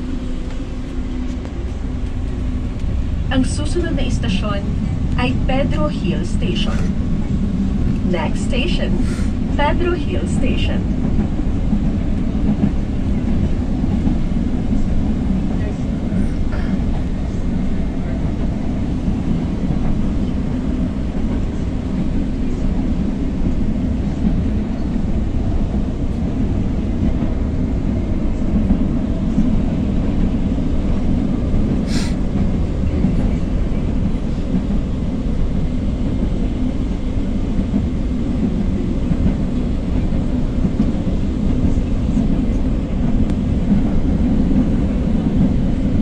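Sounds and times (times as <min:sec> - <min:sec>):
train wheels and motors rumbling: 0:00.0 - 0:46.0.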